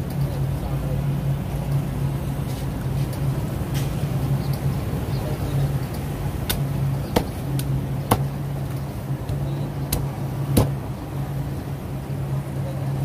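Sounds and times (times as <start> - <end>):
steady low hum: 0.0 - 13.0
cleaver chopping on wooden block: 6.5 - 8.3, 9.3 - 10.8.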